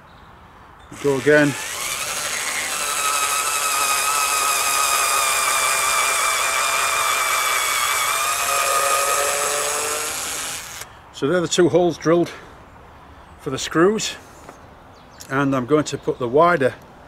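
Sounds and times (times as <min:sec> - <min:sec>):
cordless screwdriver drilling into wood: 0:01.0 - 0:10.9.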